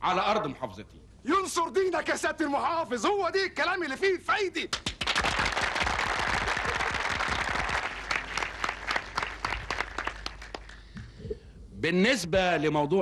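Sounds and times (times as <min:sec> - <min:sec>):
crowd applauding: 0:04.7 - 0:11.0.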